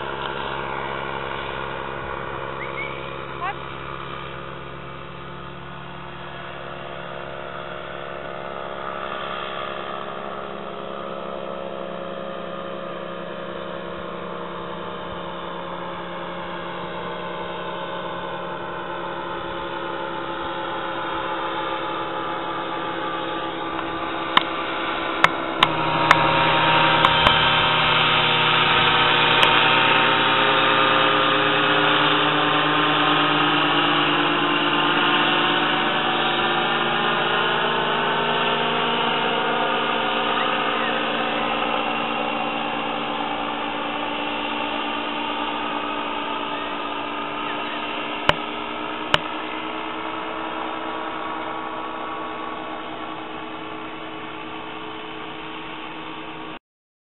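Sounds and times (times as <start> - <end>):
paraglider engine droning: 0.0 - 56.6.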